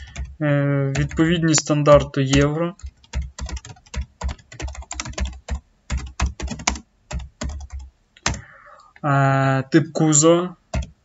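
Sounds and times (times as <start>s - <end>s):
typing on computer keyboard: 0.0s - 8.5s, 10.7s - 11.0s.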